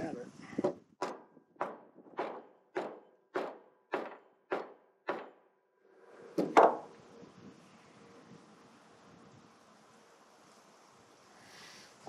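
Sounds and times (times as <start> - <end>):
mallet knocking on wooden deck: 0.6 - 5.4, 6.4 - 6.9
mallet knocking on metal rod: 1.0 - 5.4.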